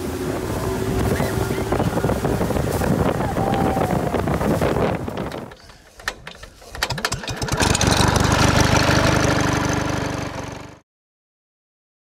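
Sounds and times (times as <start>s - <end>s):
engine starting and running: 5.0s - 10.8s.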